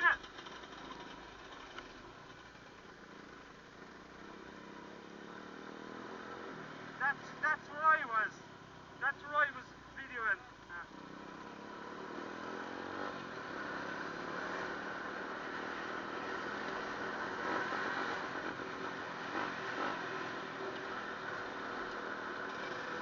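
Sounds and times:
motorbike engine accelerating: 0:10.5 - 0:23.0.

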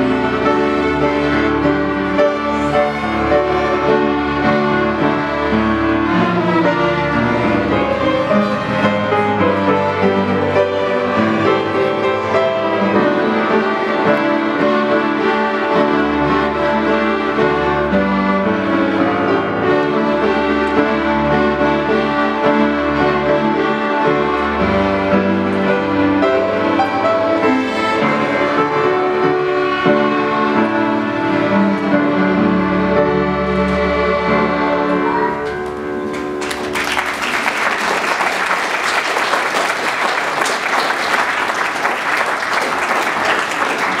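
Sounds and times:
string orchestra with piano: 0:00.0 - 0:44.0
audience applauding: 0:36.0 - 0:44.0.

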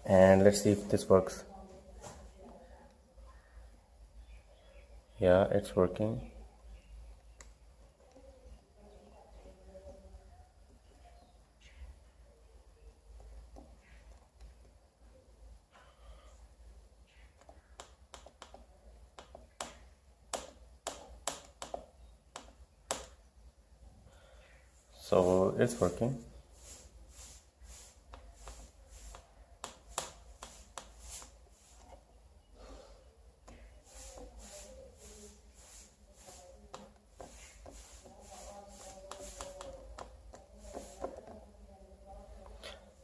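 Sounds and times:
fingers rustling wires: 0:24.8 - 0:32.2, 0:33.4 - 0:42.6.

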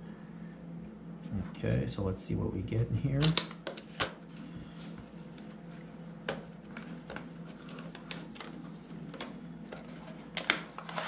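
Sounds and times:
packaging rustling: 0:04.7 - 0:11.0.

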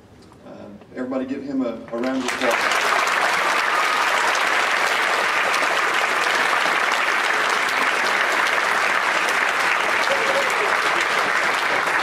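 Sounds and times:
audience clapping: 0:01.9 - 0:12.0.

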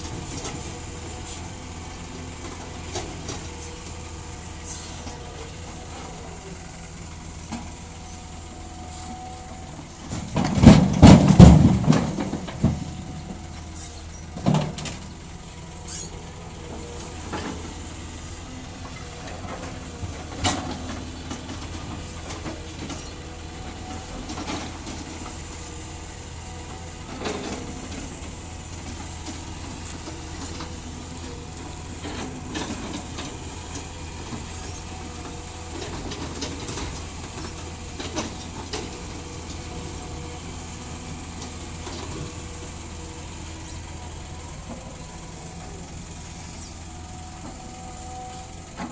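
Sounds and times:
excavator diesel engine running: 0:00.0 - 0:48.9
rumbling crash of rocks: 0:10.2 - 0:13.0.

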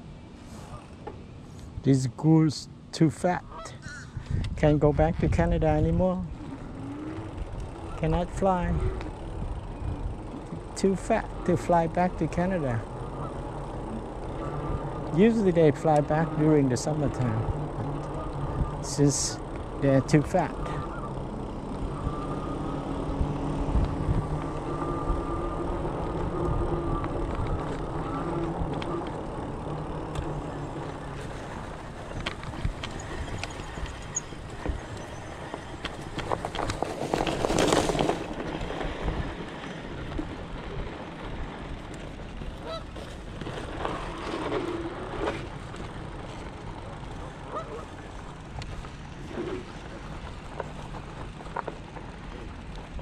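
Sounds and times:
faint steady whine: 0:00.0 - 0:36.8
wind buffeting microphone: 0:04.1 - 0:11.5, 0:17.2 - 0:19.8, 0:20.4 - 0:44.2
bicycle tyres rolling: 0:04.3 - 0:53.0
geese honking: 0:12.8 - 0:19.3, 0:19.9 - 0:23.1, 0:24.4 - 0:31.2, 0:42.6 - 0:42.9, 0:47.4 - 0:48.0.

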